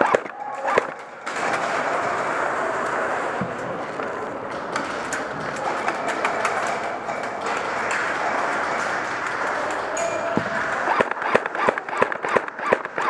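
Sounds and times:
airsoft guns firing: 0.0 - 3.3, 7.4 - 13.0
noisy indoor din: 0.0 - 13.0.

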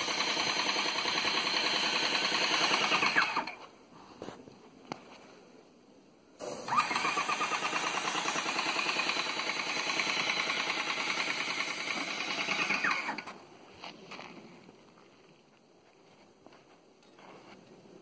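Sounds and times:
paint sprayer pump pulsing: 0.0 - 3.5, 6.4 - 13.3.

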